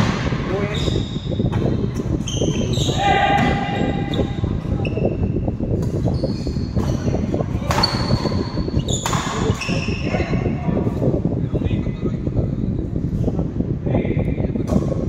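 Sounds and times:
shoes squeaking on wooden floor: 0:06.0 - 0:10.0
rackets hitting shuttlecock: 0:09.0 - 0:09.6.

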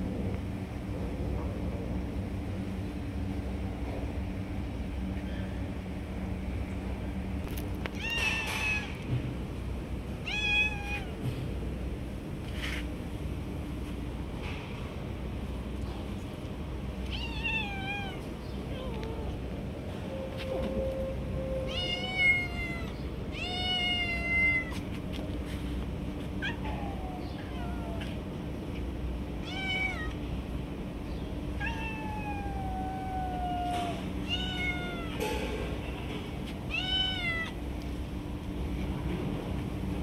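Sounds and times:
low steady hum: 0:00.0 - 0:40.0
cats meowing: 0:08.0 - 0:09.0, 0:10.2 - 0:11.2, 0:17.0 - 0:19.4, 0:21.6 - 0:24.8, 0:26.4 - 0:28.2, 0:29.4 - 0:30.2, 0:31.5 - 0:35.2, 0:36.7 - 0:37.6.

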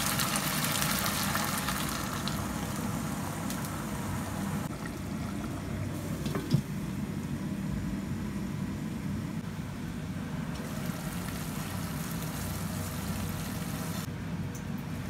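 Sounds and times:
water pouring into pot: 0:00.0 - 0:02.9
pot simmering: 0:00.0 - 0:07.7, 0:10.6 - 0:14.1.

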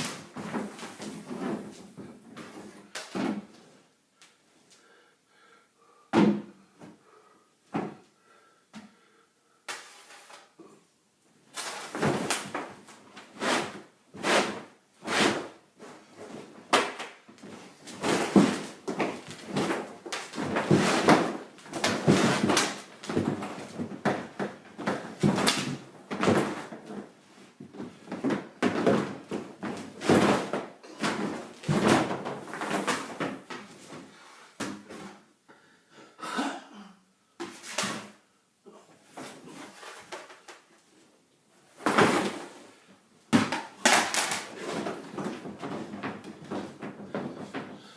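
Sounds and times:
plastic kayak scraping on floor: 0:00.0 - 0:03.6, 0:09.8 - 0:10.5, 0:11.5 - 0:27.2, 0:27.8 - 0:34.2, 0:39.1 - 0:40.5, 0:41.7 - 0:42.8.

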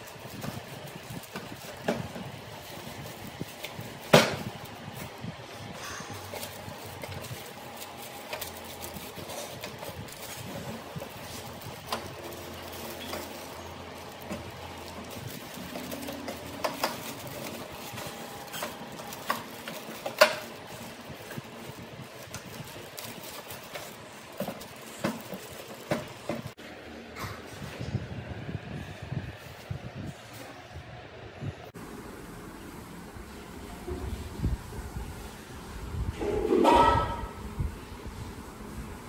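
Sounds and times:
plastic wrap and foam crinkling: 0:00.0 - 0:26.6.

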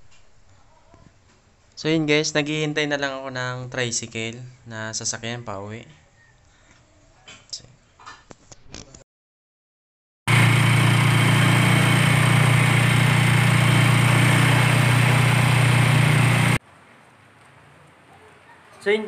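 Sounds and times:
motorcycle engine running: 0:10.3 - 0:16.6.

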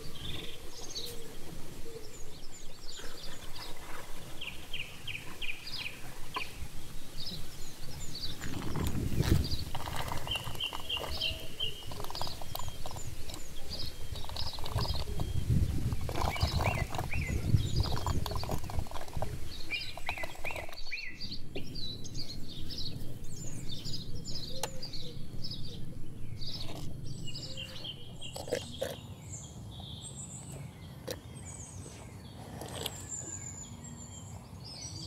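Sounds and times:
small birds chirping: 0:00.0 - 0:35.0
cow sucking and gulping water: 0:07.2 - 0:25.0, 0:26.4 - 0:29.1, 0:31.0 - 0:33.4.

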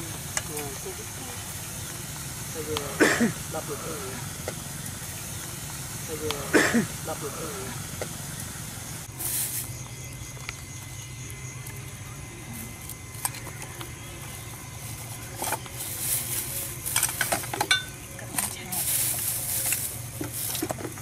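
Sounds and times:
steady low hum: 0:00.0 - 0:21.0
plastic bags rustling: 0:09.1 - 0:10.0, 0:12.6 - 0:21.0
kitchen items clicking and knocking: 0:16.8 - 0:18.7.

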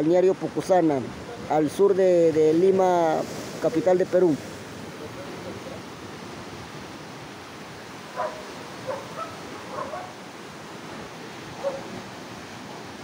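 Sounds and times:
surf washing over rocks: 0:00.0 - 0:13.0
dog barking: 0:08.2 - 0:10.2, 0:11.6 - 0:11.9.

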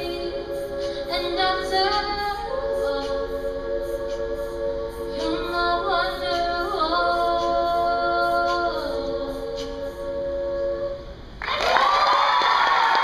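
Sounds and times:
female group singing sustained chord: 0:00.0 - 0:11.2
solo woman singing melody: 0:05.2 - 0:10.3.

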